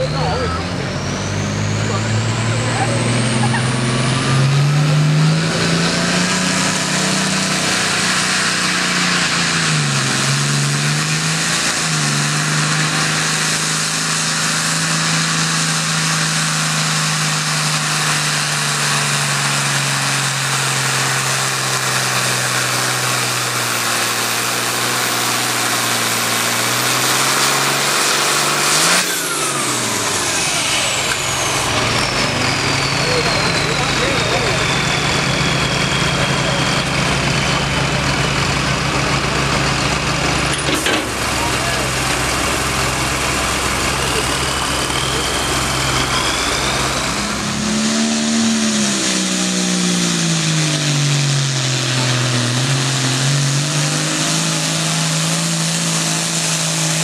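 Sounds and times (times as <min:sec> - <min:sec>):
tractor diesel engine at full throttle: 0:00.0 - 0:57.0
high whine sliding down: 0:29.0 - 0:57.0.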